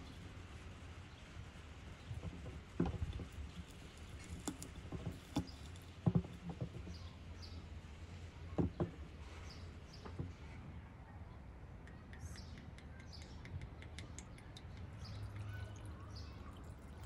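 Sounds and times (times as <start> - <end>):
faint bird chirps: 14.3 - 17.0.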